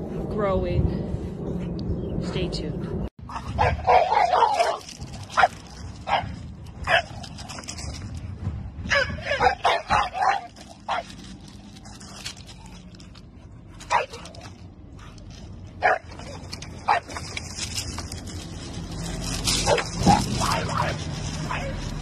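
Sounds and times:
dog barking: 3.3s - 7.1s, 8.9s - 11.1s, 13.9s - 14.2s, 15.8s - 16.1s, 16.9s - 17.1s, 19.6s - 21.8s.

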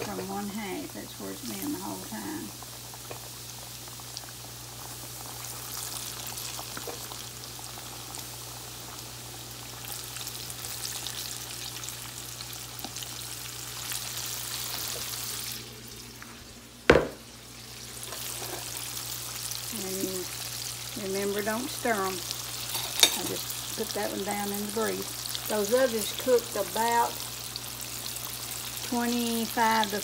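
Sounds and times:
meat deep frying in oil: 0.0s - 30.0s
sharp knock: 16.9s - 17.2s.

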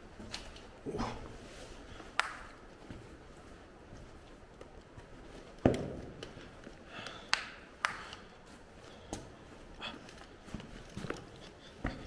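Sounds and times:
echoing footsteps on rock: 1.9s - 7.3s.

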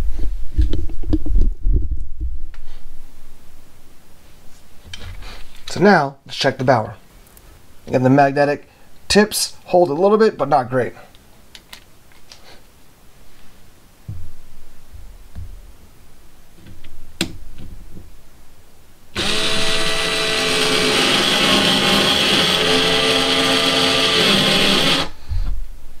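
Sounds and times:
cordless screwdriver whine: 19.2s - 25.2s.

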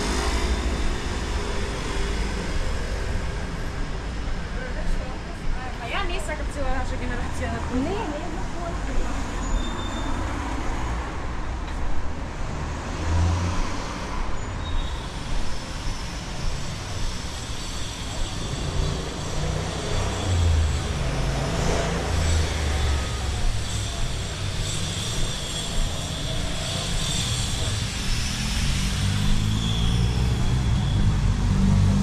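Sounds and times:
vehicles passing: 0.0s - 32.0s.

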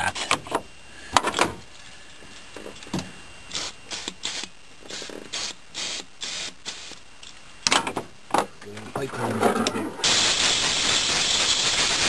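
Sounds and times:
aerosol spray hissing: 3.5s - 7.0s, 10.0s - 12.0s.

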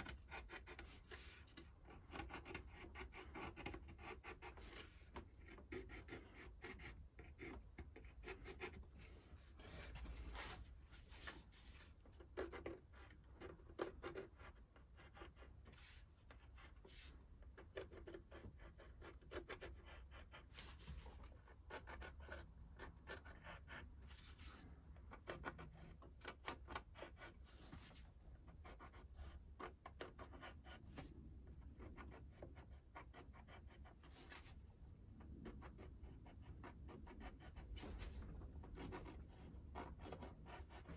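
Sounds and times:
pencil scratching: 0.0s - 40.9s.

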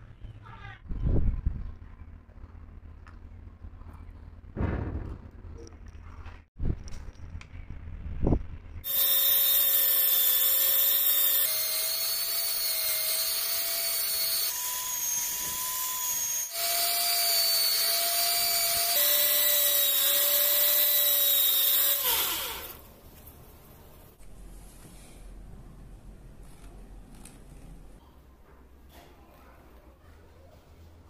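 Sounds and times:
belt sander motor whine: 8.9s - 22.8s.

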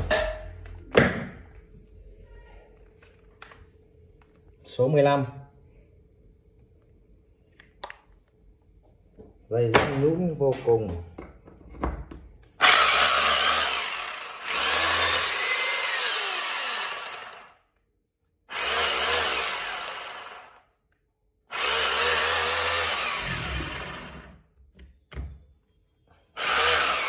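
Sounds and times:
hammer drill running: 12.6s - 17.6s, 18.5s - 20.7s, 21.5s - 24.4s, 26.4s - 27.0s.

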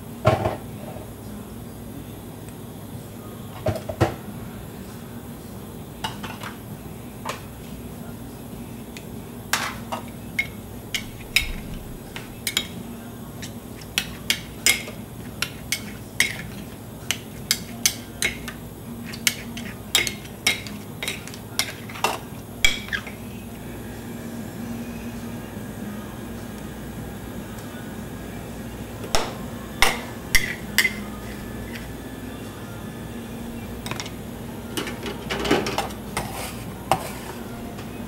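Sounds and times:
steady low hum: 0.0s - 38.0s
metal spatulas clinking on stone: 14.0s - 23.0s.

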